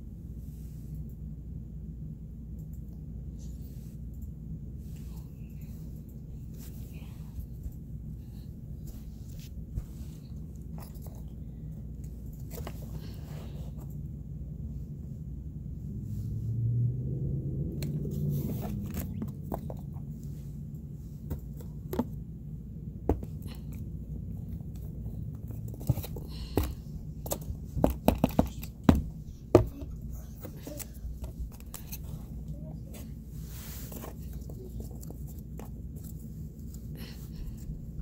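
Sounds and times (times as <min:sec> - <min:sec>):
paper puppets clicking and rustling: 0:24.5 - 0:33.1, 0:33.9 - 0:37.2.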